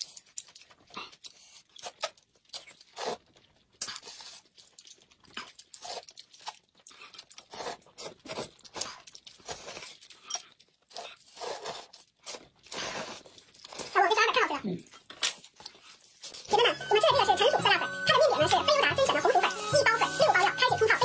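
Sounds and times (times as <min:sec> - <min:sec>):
noodles slurped: 0:00.0 - 0:14.4
chewing: 0:00.0 - 0:16.6.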